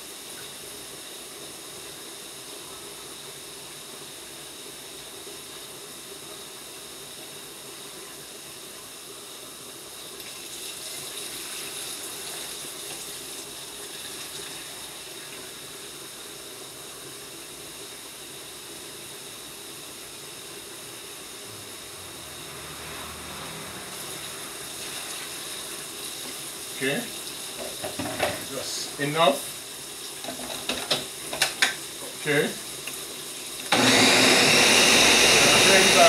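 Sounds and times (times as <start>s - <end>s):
steady background hiss: 24.0s - 33.7s.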